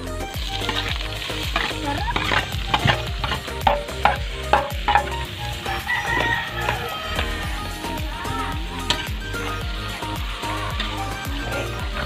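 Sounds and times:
snails sizzling in hot oil: 0:00.0 - 0:12.0
metal spoon clinking and scraping bowl: 0:00.6 - 0:05.2.

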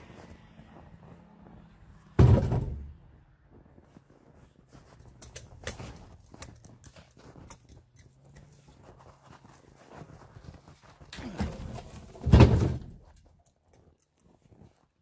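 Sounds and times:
log thunking onto logs: 0:02.2 - 0:03.0, 0:11.2 - 0:13.1.

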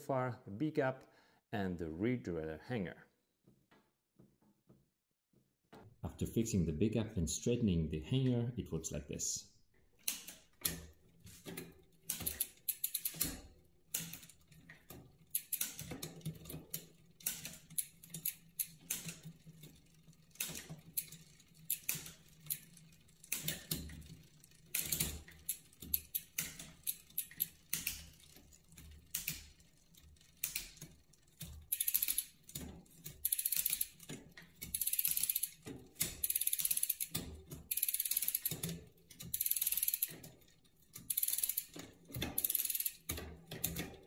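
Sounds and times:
bicycle gears clicking: 0:10.0 - 0:44.0.

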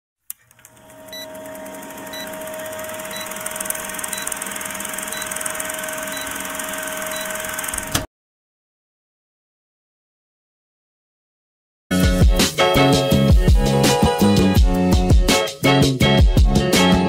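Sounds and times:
film projector whirring and clattering: 0:00.4 - 0:08.1
short high beeps: 0:05.1 - 0:05.5, 0:07.1 - 0:07.4.

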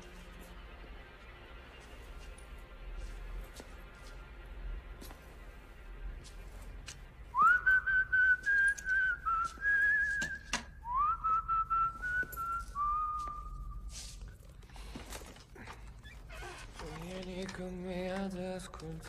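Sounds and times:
man whistling a tune: 0:07.4 - 0:13.9.

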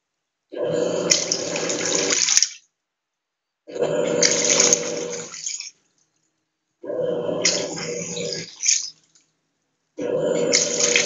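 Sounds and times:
washing machine hum: 0:00.5 - 0:02.6, 0:03.7 - 0:05.7, 0:06.8 - 0:09.0, 0:10.0 - 0:11.0
washing machine water churning: 0:00.6 - 0:02.6, 0:03.7 - 0:05.7, 0:06.9 - 0:08.9, 0:10.0 - 0:11.0.

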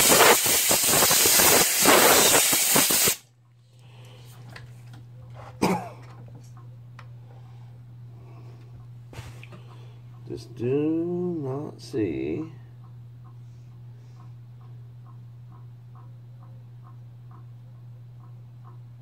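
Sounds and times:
pressurized spray hissing: 0:00.0 - 0:03.2.

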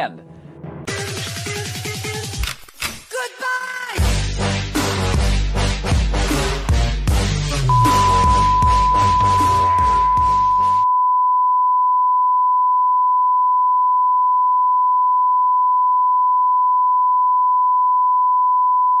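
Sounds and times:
electronic music: 0:05.9 - 0:10.8
steady electronic beep: 0:07.7 - 0:16.4.

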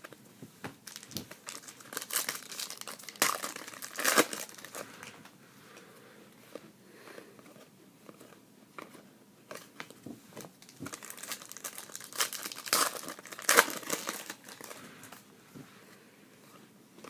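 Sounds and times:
card pack wrapper crinkling: 0:00.8 - 0:05.1, 0:10.6 - 0:14.8.

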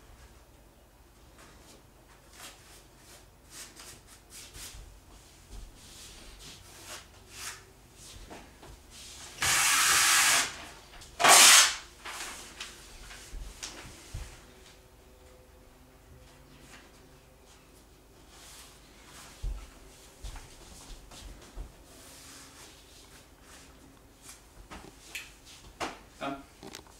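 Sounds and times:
paper ripping: 0:11.2 - 0:12.3.

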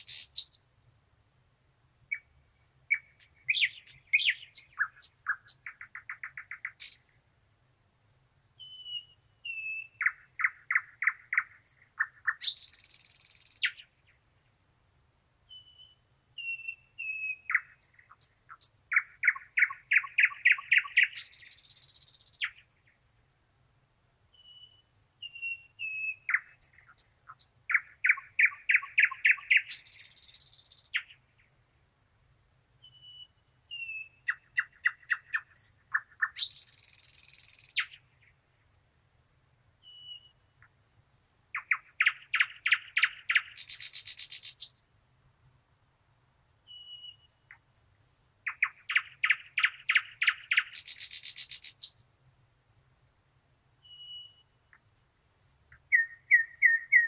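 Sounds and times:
bird whistled notes: 0:53.9 - 0:54.4, 0:55.2 - 0:57.0.

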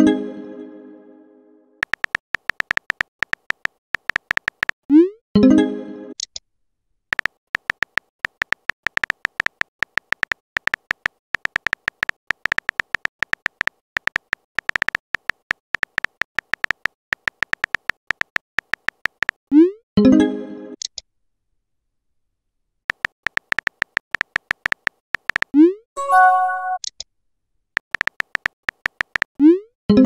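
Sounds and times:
phone keyboard tap clicks: 0:01.8 - 0:04.8, 0:07.1 - 0:19.4, 0:22.9 - 0:25.6, 0:27.8 - 0:29.3
brief chime: 0:26.0 - 0:26.8.

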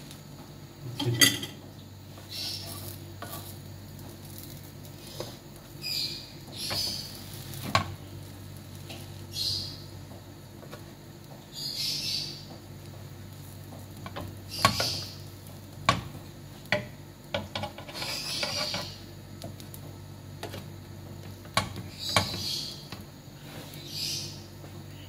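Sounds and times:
buns sizzling in butter: 0:00.0 - 0:25.0
steady low hum: 0:00.0 - 0:25.0
spatula scraping a grill pan: 0:02.2 - 0:09.6, 0:13.4 - 0:19.1, 0:21.5 - 0:24.3.

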